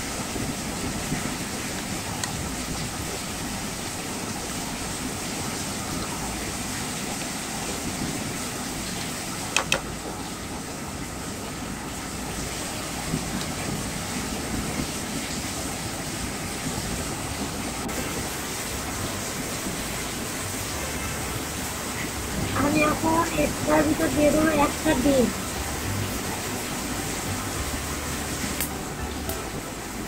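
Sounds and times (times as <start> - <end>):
steady background rumble: 9.9 - 30.0.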